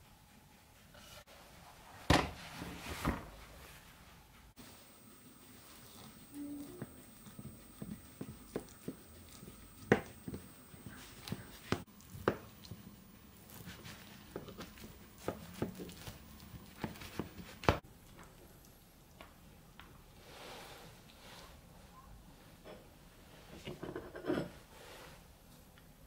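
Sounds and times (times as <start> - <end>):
knife crunching through pastry: 4.7 - 11.8.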